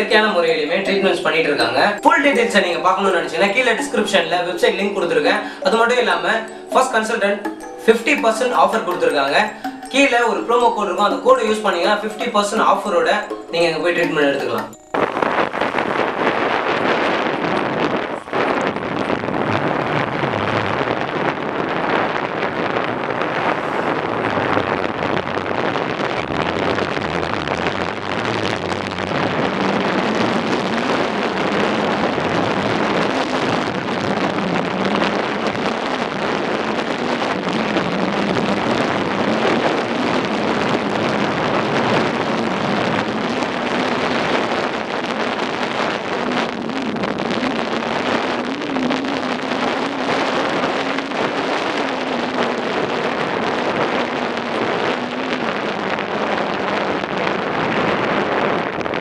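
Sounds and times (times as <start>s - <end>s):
wind rushing over microphone: 14.8s - 59.0s.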